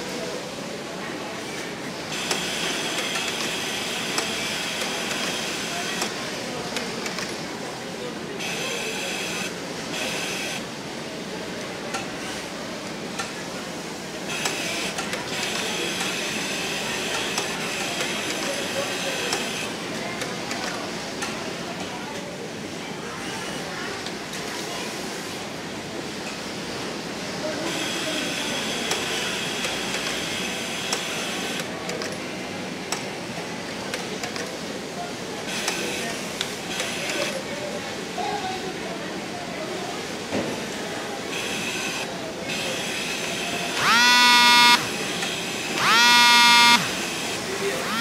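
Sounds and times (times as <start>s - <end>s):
overlock sewing machine whirring: 43.7s - 48.0s
sharp clicks: 43.8s - 44.8s.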